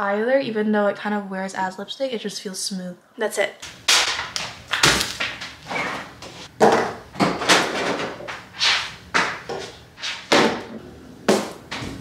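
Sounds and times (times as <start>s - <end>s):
refrigerator door opening and shutting: 11.6s - 12.0s.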